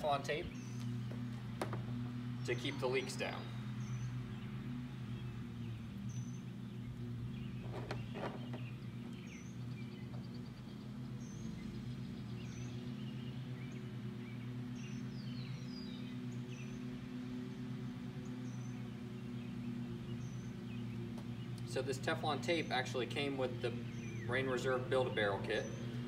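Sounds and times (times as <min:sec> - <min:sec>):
small birds chirping: 0:00.0 - 0:26.0
steady low hum: 0:00.0 - 0:26.0.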